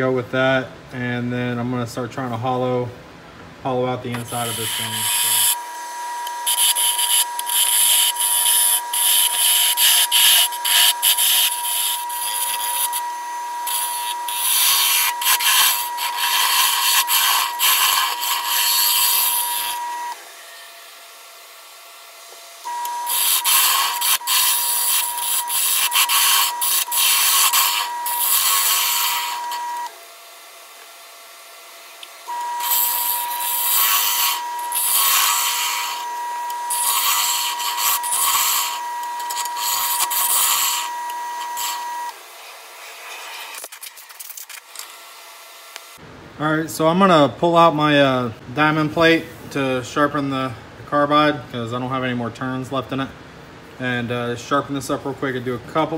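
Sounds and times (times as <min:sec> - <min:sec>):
lathe tool scraping wood: 0:04.1 - 0:21.1, 0:22.3 - 0:30.0, 0:31.9 - 0:45.0
lathe whine: 0:04.1 - 0:46.0.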